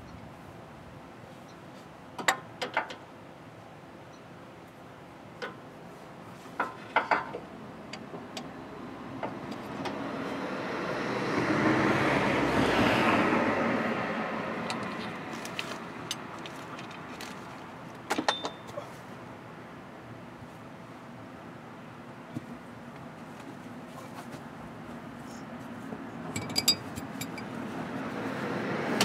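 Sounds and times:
vehicle driving past: 0:08.8 - 0:16.0, 0:27.5 - 0:29.0.

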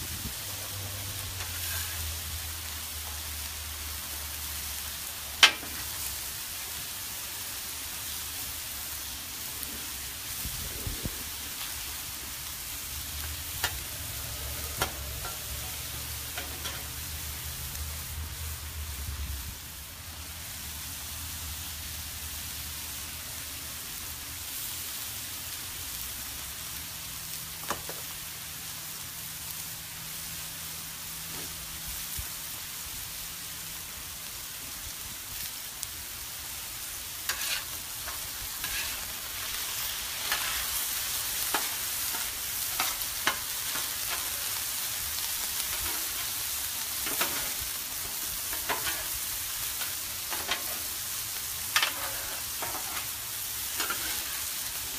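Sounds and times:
food sizzling on griddle: 0:00.0 - 0:54.9
metal spatula scraping griddle: 0:00.6 - 0:02.4, 0:13.2 - 0:17.0, 0:37.2 - 0:44.6, 0:45.6 - 0:51.0, 0:51.7 - 0:54.9.

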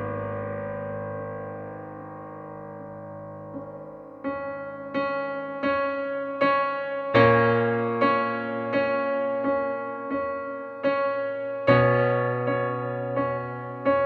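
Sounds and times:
slow electric piano tune: 0:00.0 - 0:14.0.

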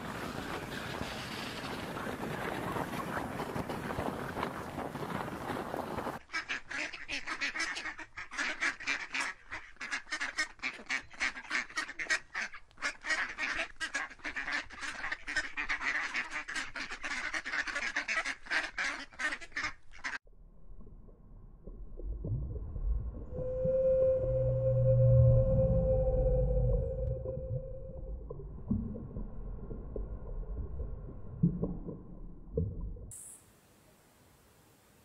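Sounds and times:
ducks quacking: 0:06.3 - 0:20.2
faint low rumble: 0:20.3 - 0:33.4.

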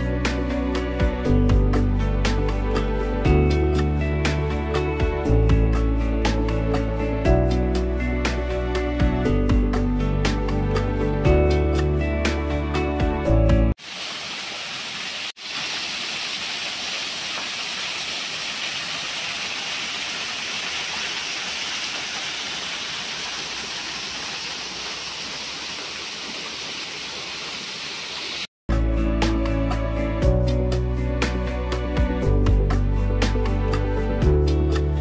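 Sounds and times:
small waterfall splashing: 0:13.8 - 0:28.5.

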